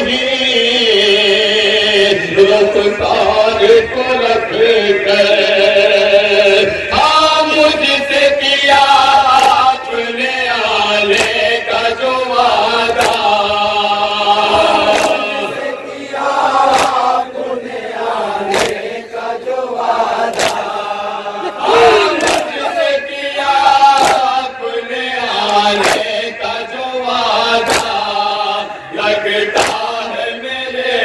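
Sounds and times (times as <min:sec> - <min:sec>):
men chanting over a microphone: 0:00.0 - 0:31.0
chest-beating slaps: 0:09.3 - 0:09.7, 0:11.1 - 0:11.5, 0:12.9 - 0:13.4, 0:14.5 - 0:15.6, 0:16.6 - 0:17.2, 0:18.4 - 0:19.0, 0:20.2 - 0:20.9, 0:22.1 - 0:22.7, 0:24.0 - 0:24.4, 0:25.4 - 0:26.2, 0:27.6 - 0:28.1, 0:29.5 - 0:29.9.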